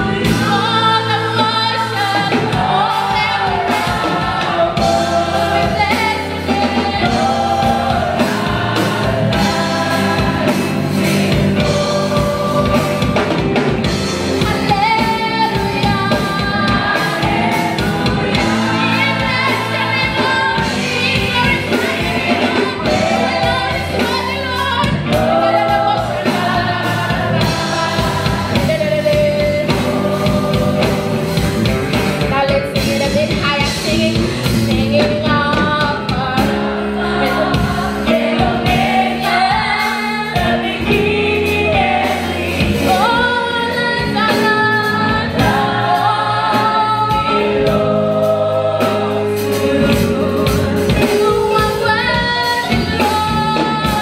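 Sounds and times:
band with electric bass: 0.0s - 54.0s
women singing gospel: 0.0s - 54.0s.

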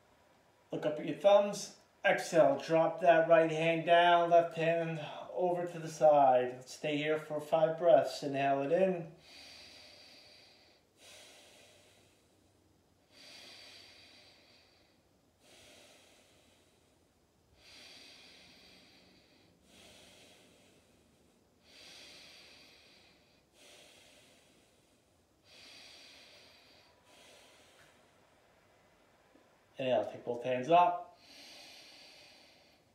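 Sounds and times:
person breathing slowly: 9.1s - 29.7s, 31.0s - 32.9s.

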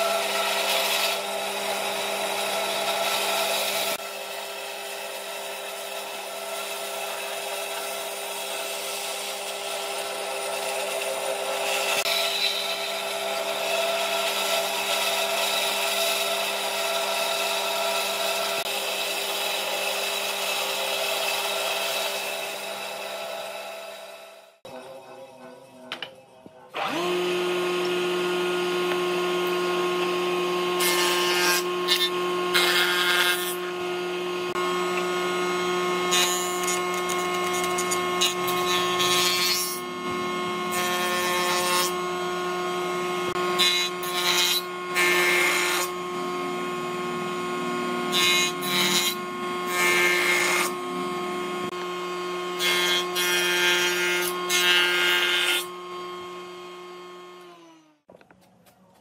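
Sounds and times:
jointer cutting wood: 0.0s - 24.6s, 26.7s - 58.3s
woodworking machine humming: 0.0s - 25.2s, 26.7s - 58.8s.

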